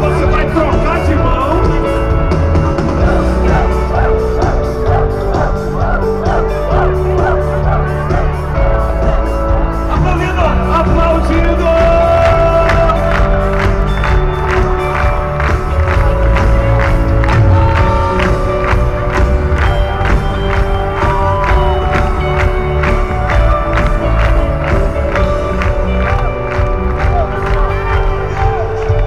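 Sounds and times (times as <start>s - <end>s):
crowd singing and cheering: 0.0s - 29.0s
live gospel band playing: 0.0s - 29.0s
drum beat: 0.1s - 29.0s.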